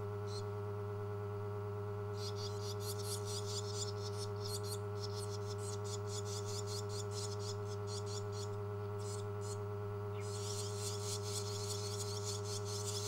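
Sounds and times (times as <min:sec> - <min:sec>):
low electrical hum: 0:00.0 - 0:13.0
bird nestlings begging calls: 0:02.2 - 0:09.6, 0:10.2 - 0:13.0.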